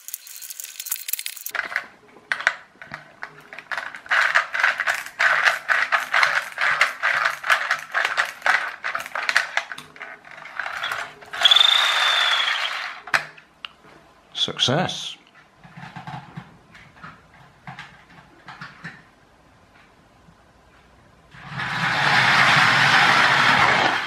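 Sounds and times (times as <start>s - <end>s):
clockwork spring motor whirring: 10.7s - 13.0s.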